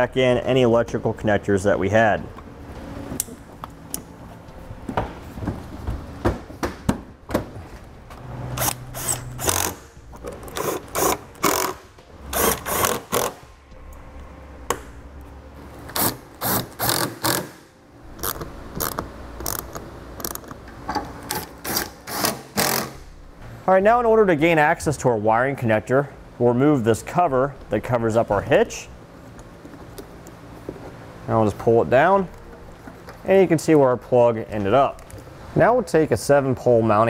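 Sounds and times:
cordless power driver running: 8.6s - 13.4s.

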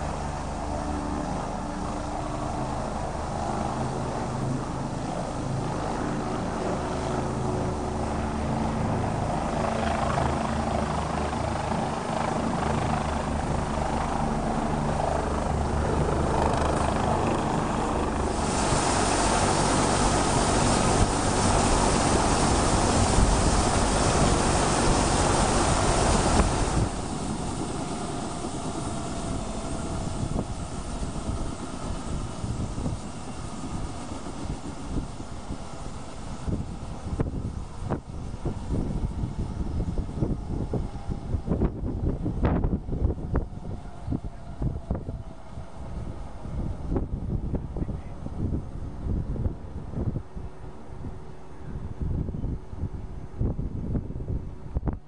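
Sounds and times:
loud hissing rush: 0.0s - 41.6s
helicopter rotor beating: 0.0s - 51.3s.

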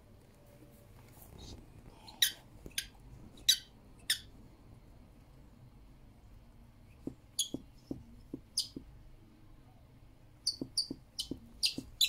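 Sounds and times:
squeaky toy squeaks: 2.2s - 4.3s, 10.4s - 12.0s.

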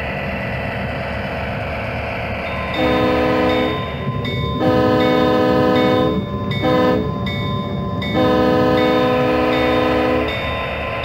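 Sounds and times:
locomotive chime air horn: 2.8s - 4.0s, 4.6s - 7.2s, 8.1s - 10.4s.

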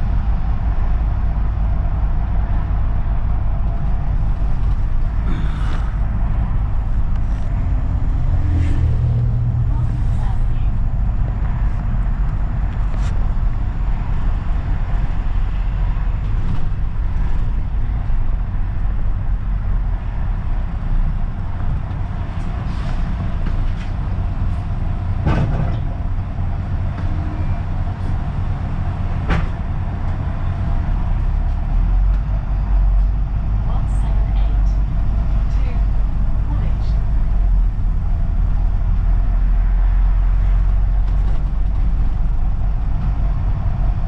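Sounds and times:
bus engine and road rumble: 0.0s - 44.0s.

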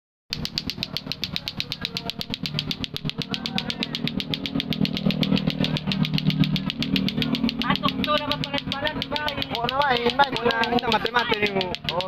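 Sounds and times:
clacker toy clacking: 0.3s - 12.0s.

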